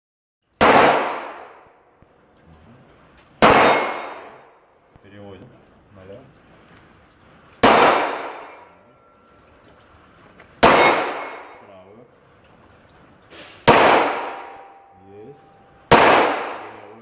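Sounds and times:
pistol shots: 0.6 - 1.8, 3.4 - 4.6, 7.6 - 8.6, 10.6 - 11.6, 13.4 - 14.9, 15.9 - 17.0
steel plate ringing: 3.5 - 4.5, 7.7 - 10.0, 10.6 - 12.0, 14.3 - 15.9.

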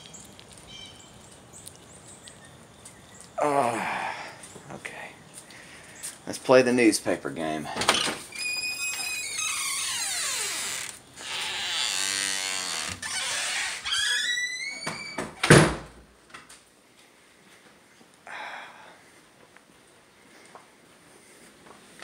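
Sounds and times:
door hinges squeaking: 7.7 - 15.8
door shutting with thud: 14.6 - 16.0.

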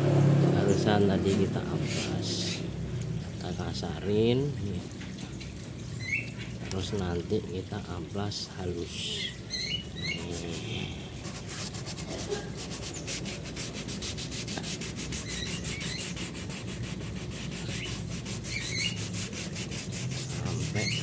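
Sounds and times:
sandpaper rubbing on plastic: 10.0 - 21.0.

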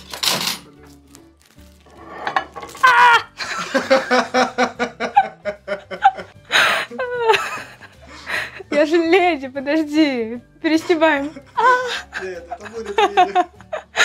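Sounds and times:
woman laughing hard: 2.8 - 8.8, 11.1 - 14.0.

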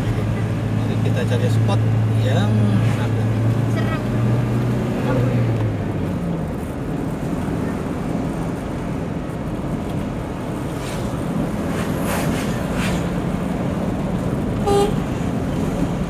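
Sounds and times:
car engine and road noise: 0.0 - 16.0
car horn beep: 14.6 - 15.1.

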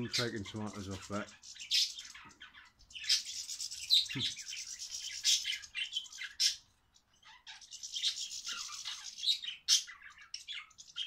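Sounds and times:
small birds chirping and twittering: 0.0 - 11.0.

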